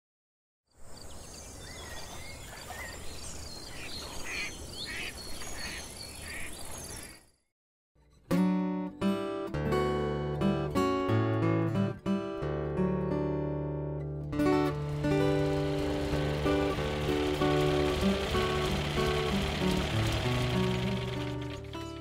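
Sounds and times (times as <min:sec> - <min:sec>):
birds chirping: 0:00.8 - 0:07.5, 0:14.8 - 0:21.8
acoustic guitar music: 0:08.0 - 0:22.0.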